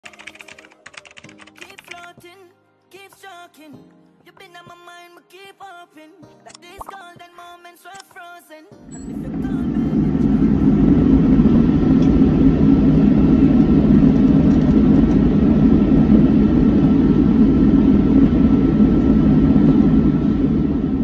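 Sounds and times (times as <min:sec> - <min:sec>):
airliner cabin rumble: 0:08.9 - 0:21.0
faint steady whine: 0:08.9 - 0:21.0.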